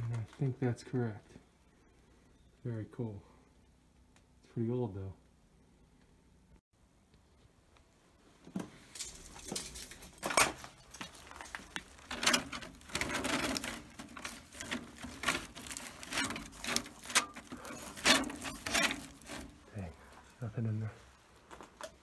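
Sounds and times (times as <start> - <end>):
paper folders rustling: 8.8 - 19.8.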